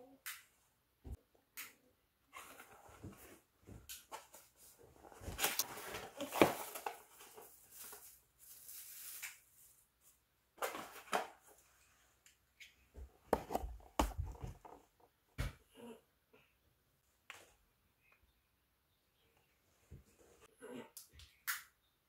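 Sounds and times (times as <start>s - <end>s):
packaging rustling and scraping: 4.2s - 9.8s.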